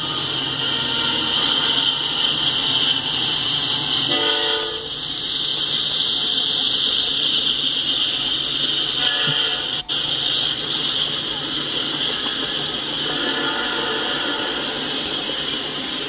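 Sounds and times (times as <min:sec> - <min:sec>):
locomotive air horn: 0:00.0 - 0:02.4, 0:04.0 - 0:04.9, 0:09.0 - 0:09.8, 0:13.0 - 0:14.9
freight train wheels on rail: 0:00.0 - 0:16.0.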